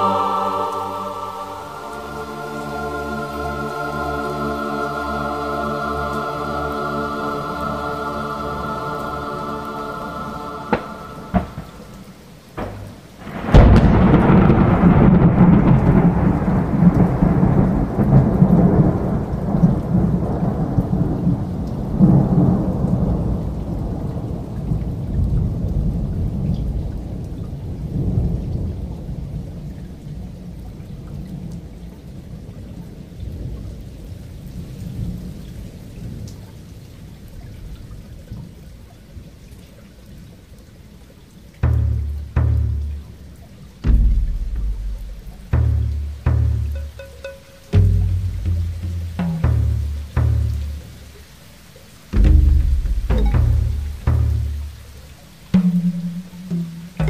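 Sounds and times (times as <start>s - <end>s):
rain: 0.0s - 57.0s
thunder crack: 10.7s - 23.4s, 41.6s - 51.1s, 52.1s - 57.0s
low thunder rumble: 10.7s - 27.2s, 41.6s - 47.0s, 52.1s - 57.0s.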